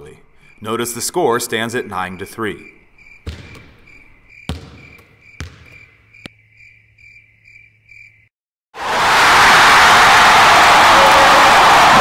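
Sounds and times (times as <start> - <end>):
cricket chirping: 0.0 - 8.3
basketball bouncing on wooden floor: 3.2 - 6.3.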